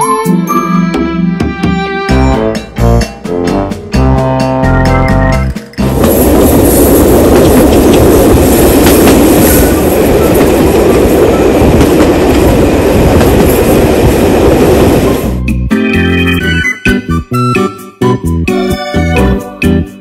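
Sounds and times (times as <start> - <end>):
train wheels on rails: 5.8 - 15.4.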